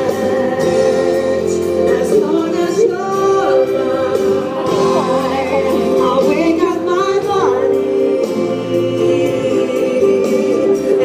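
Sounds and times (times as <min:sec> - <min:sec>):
man singing: 0:00.0 - 0:11.0
sustained musical accompaniment: 0:00.0 - 0:11.0
woman singing: 0:00.0 - 0:11.0.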